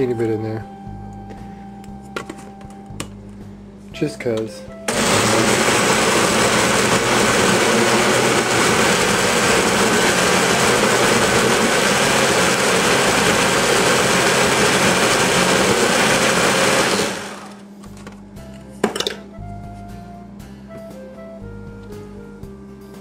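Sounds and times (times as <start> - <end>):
blender motor running: 4.9 - 17.6.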